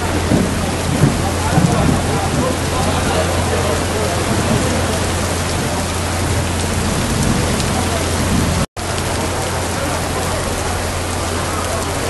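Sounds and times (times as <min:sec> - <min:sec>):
heavy rain splashing: 0:00.0 - 0:12.0.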